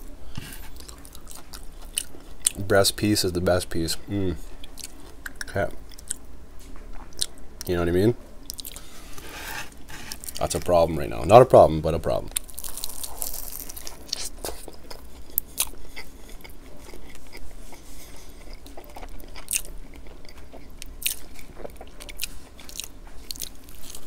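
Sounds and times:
chewing crunchy fried chicken: 0:00.5 - 0:02.6, 0:08.5 - 0:09.4, 0:12.3 - 0:24.0.

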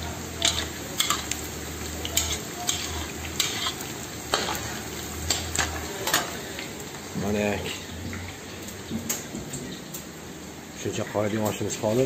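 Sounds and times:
onion rings sizzling in oil: 0:00.0 - 0:12.0
metal utensil clicking on pot: 0:00.4 - 0:01.4.

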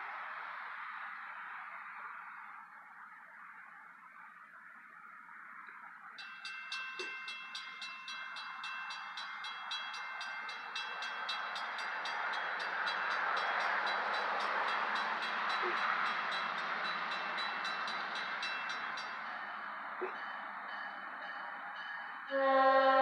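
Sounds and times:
crossing warning bell ringing: 0:06.1 - 0:23.0
diesel locomotive approaching: 0:06.2 - 0:23.0.

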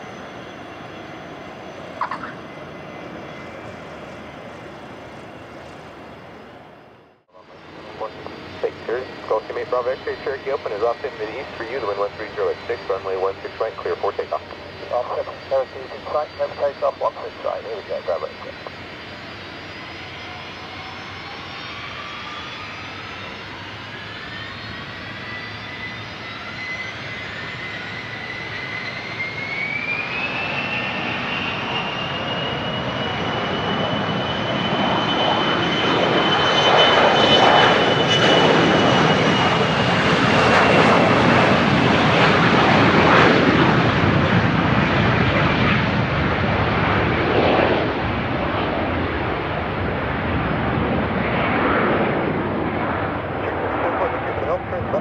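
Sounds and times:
jet engines spooling up: 0:00.0 - 0:55.0.

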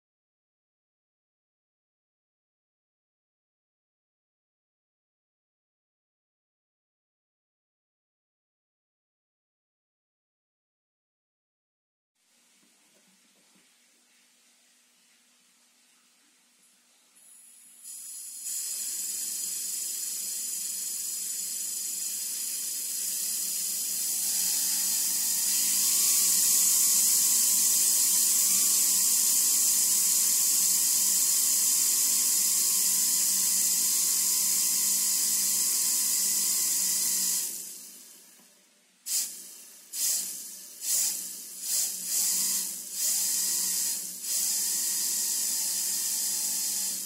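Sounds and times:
turbine whine rising in pitch: 0:23.9 - 0:30.8
loud air hiss: 0:39.1 - 0:43.3.

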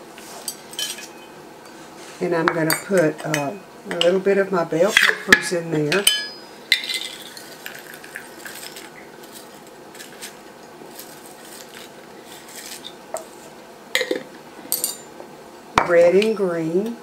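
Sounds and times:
dried pepper pieces rattling: 0:06.8 - 0:12.9.

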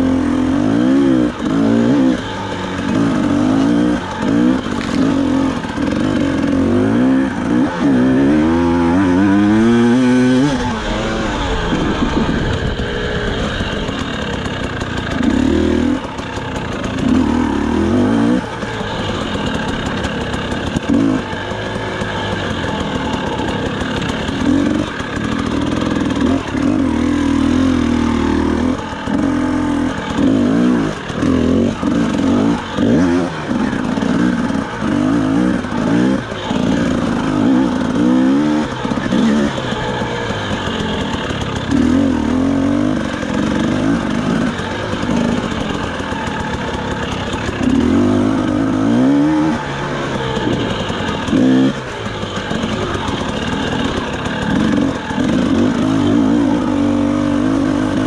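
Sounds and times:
drone motors buzzing: 0:00.0 - 0:56.8.

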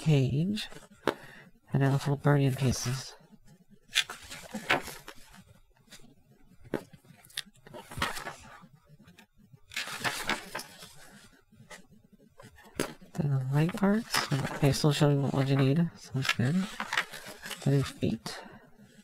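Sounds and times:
paper pages rustling: 0:03.8 - 0:19.0.

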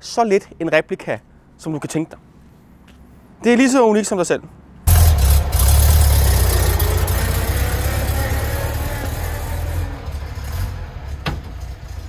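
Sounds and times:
car engine idling: 0:04.9 - 0:12.0.

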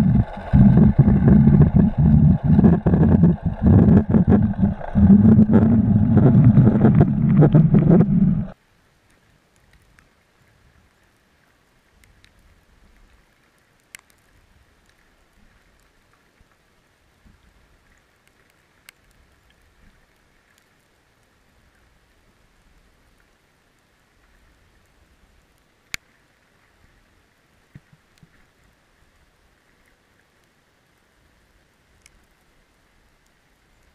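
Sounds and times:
underwater hiss and rumble: 0:00.0 - 0:08.6.

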